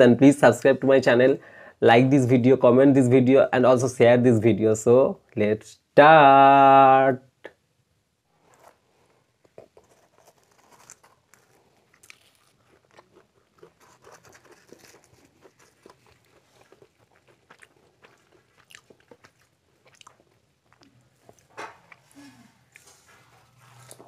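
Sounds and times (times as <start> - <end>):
fried bread crackling and tearing: 9.5 - 20.8.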